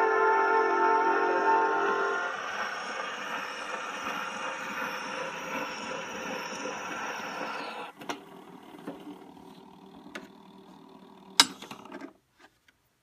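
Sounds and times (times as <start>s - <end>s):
turntable mechanical hum: 0.1s - 12.3s
phonograph record playing: 2.2s - 12.8s
turntable ticks: 2.3s - 8.0s.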